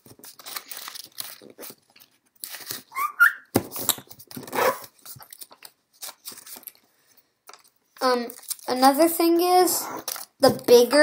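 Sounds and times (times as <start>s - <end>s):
paper rustling and crinkling: 0.0s - 9.0s
brief high squeak: 3.0s - 3.4s.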